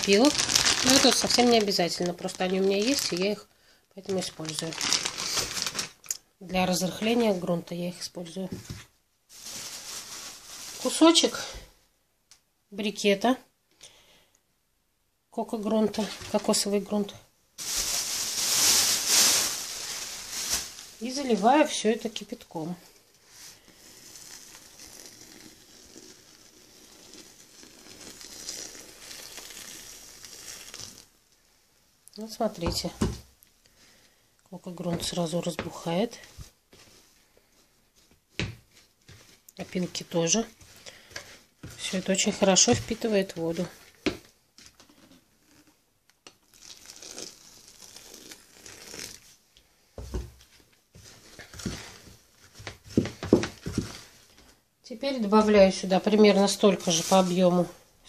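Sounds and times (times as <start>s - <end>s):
plastic scoop scraping wet mix: 0.0s - 3.4s.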